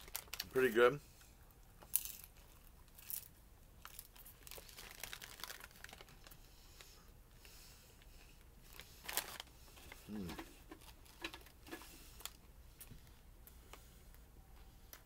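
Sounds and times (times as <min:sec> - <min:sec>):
plastic bag crinkling: 0:00.0 - 0:00.8, 0:01.9 - 0:06.4, 0:08.7 - 0:12.4
chewing sticky popcorn: 0:03.8 - 0:06.9.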